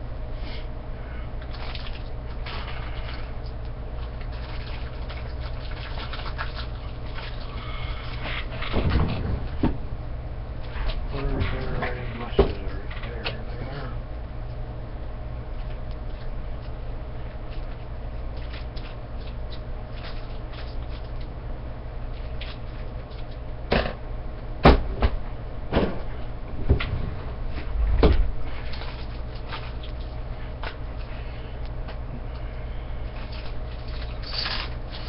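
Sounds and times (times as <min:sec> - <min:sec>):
steady low hum: 0:00.0 - 0:35.0
wooden drawer knocks and thuds: 0:08.7 - 0:09.8.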